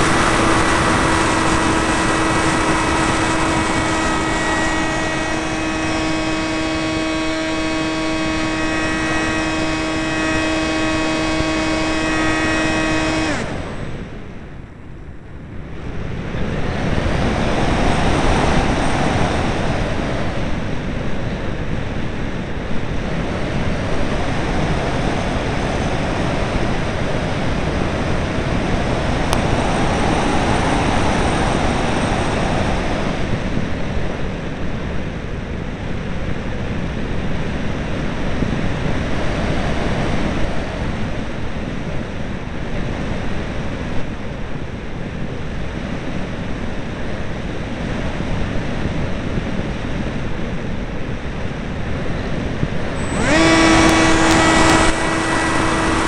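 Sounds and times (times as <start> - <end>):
airflow rushing over microphone: 0.0 - 34.9, 47.0 - 56.0.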